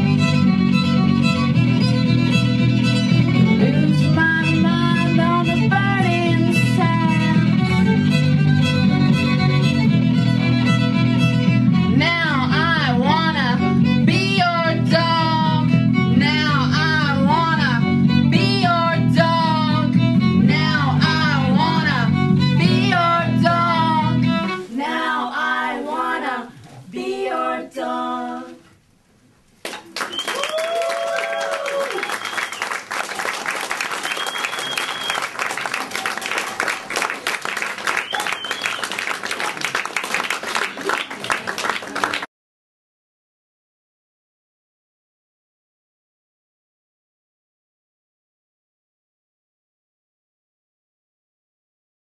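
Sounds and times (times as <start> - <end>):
bass guitar line: 0.0 - 24.6
violin: 0.0 - 24.8
woman singing with vibrato: 3.6 - 7.6, 12.0 - 28.6.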